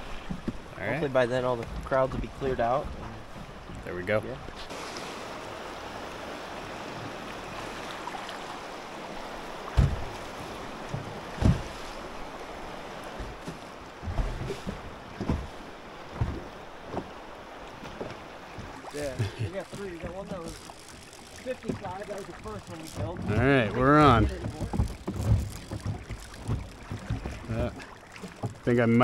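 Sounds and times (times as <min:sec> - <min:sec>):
rushing river water: 0:00.0 - 0:29.0
dull thumps on boat: 0:09.6 - 0:10.2, 0:10.8 - 0:12.0, 0:13.1 - 0:17.2, 0:23.0 - 0:28.7.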